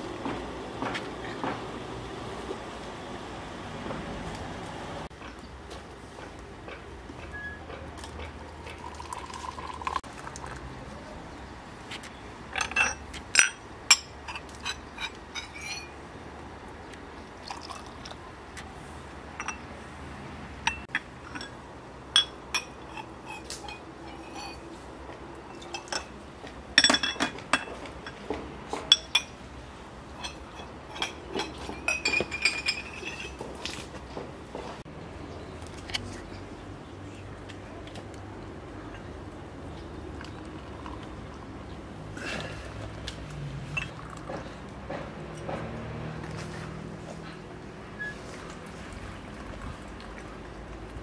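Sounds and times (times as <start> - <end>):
liquid pouring into glass: 8.8 - 10.6, 17.4 - 18.0
glasses clinking: 12.5 - 16.0, 19.4 - 19.7, 20.6 - 24.8, 25.5 - 26.2, 26.8 - 29.4, 30.2 - 33.6, 43.7 - 44.2.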